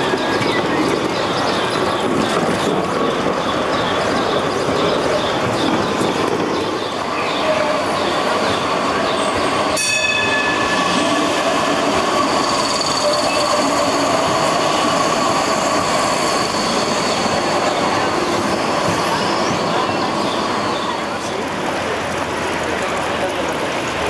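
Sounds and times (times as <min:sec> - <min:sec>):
electric trams whining past: 0:00.0 - 0:24.0
tram bell strike: 0:06.6 - 0:21.6.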